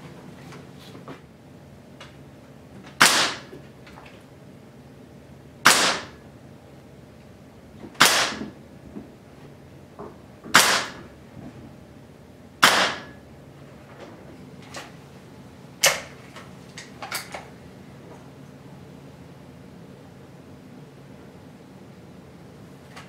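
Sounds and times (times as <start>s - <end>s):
air rifle shots: 3.0s - 3.5s, 5.6s - 6.2s, 8.0s - 8.5s, 10.5s - 11.1s, 12.6s - 13.2s.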